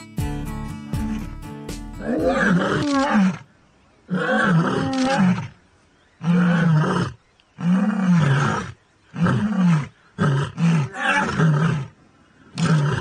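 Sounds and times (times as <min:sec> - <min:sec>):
lioness roaring: 0:02.0 - 0:03.5, 0:04.1 - 0:05.6, 0:06.2 - 0:13.0.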